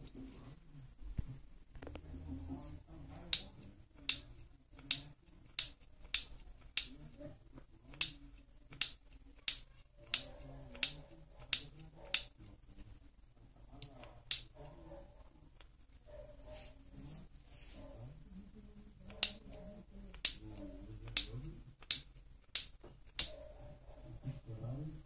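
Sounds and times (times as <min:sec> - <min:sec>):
trigger lighter clicking: 0:20.1 - 0:20.4, 0:21.1 - 0:23.3.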